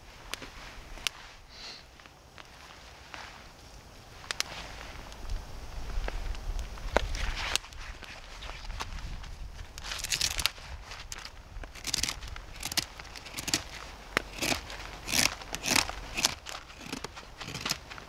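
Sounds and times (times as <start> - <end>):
deadwood snapping and crunching: 4.2 - 4.5, 9.6 - 18.0.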